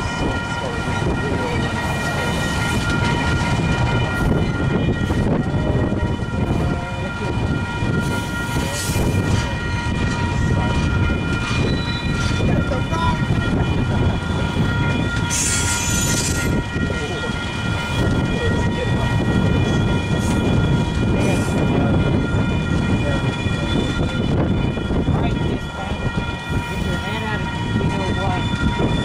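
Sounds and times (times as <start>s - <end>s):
freight train rumbling past: 0.0s - 29.0s
high-pitched ringing tones: 0.0s - 29.0s.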